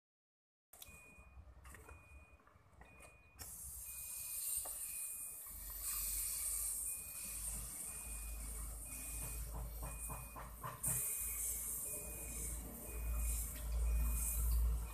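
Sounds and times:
compressed air hissing: 3.4 - 9.8, 10.8 - 14.5.

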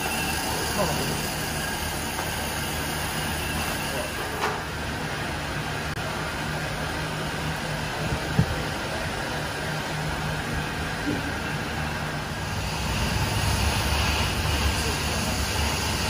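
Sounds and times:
machinery humming: 0.0 - 16.0.

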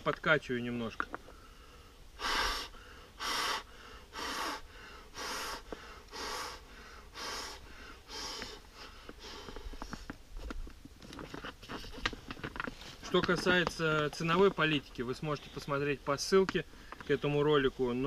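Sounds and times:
man blowing airy puffs: 1.4 - 10.1.

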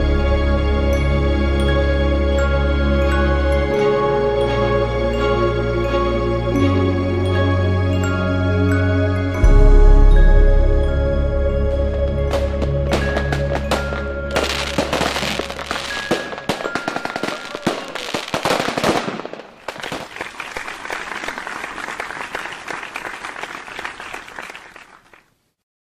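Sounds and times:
background music: 0.0 - 19.3
fireworks bangs and crackling: 12.1 - 21.4.

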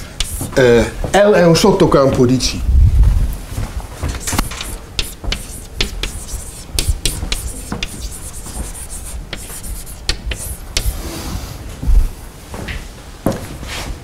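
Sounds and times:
chalk writing on blackboard: 0.0 - 0.9, 4.2 - 11.1.

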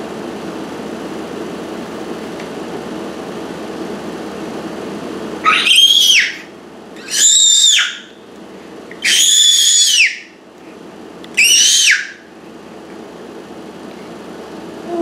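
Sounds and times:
baby squealing happily: 5.4 - 8.1, 9.0 - 10.3, 11.4 - 12.2.

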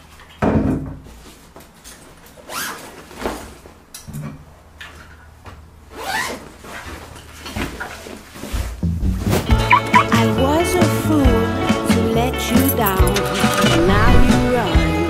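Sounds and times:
bag thumping on chair: 8.6 - 9.7.

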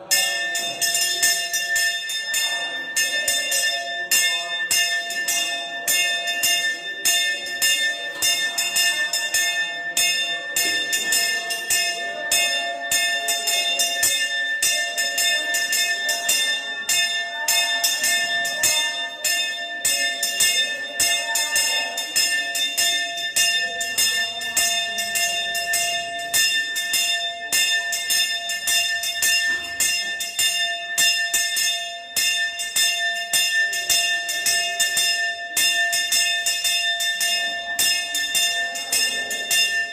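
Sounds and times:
brass hand bell ringing rapidly: 0.0 - 39.9.

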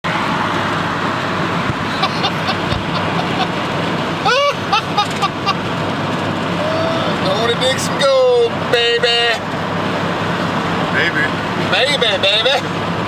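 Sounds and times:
vehicle road and engine noise: 0.0 - 13.0
man laughing: 1.9 - 3.6, 4.2 - 5.7.

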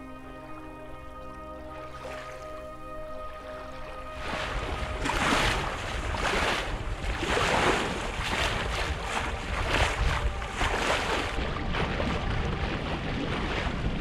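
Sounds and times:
bow wave splashing along hull: 0.0 - 14.0
wind rumble on microphone: 4.2 - 14.0.

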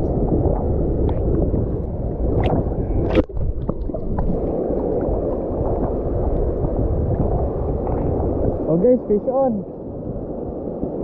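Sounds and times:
sea water sloshing: 0.0 - 8.8.

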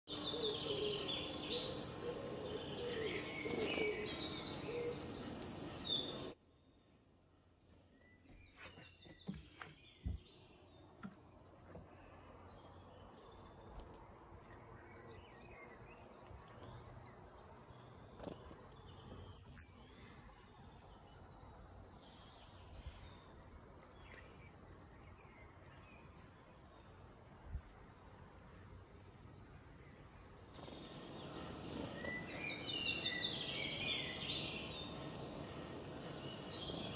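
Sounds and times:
birds chirping and whistling: 0.2 - 6.4, 30.6 - 36.9.

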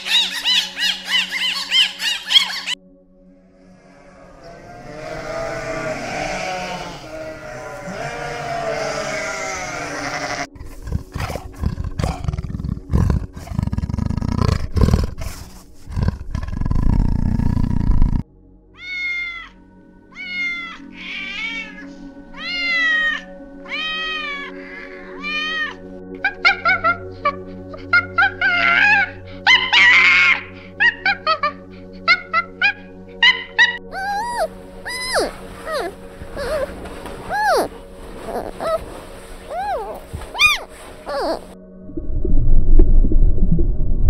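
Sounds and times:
background music: 0.0 - 44.0
big cat growling: 3.6 - 18.2, 33.9 - 41.6
sheep bleating: 3.9 - 10.6
cat meowing: 5.6 - 10.5, 18.8 - 19.5, 20.2 - 25.8, 33.9 - 36.7, 37.3 - 38.9, 39.5 - 41.5.

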